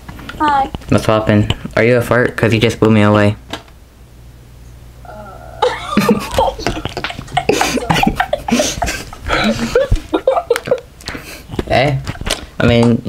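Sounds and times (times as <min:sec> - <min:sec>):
breathy laughter: 0:05.4 - 0:10.8.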